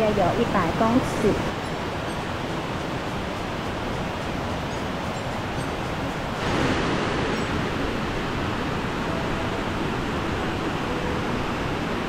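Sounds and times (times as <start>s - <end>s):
large waterfall rushing: 0.0s - 12.0s.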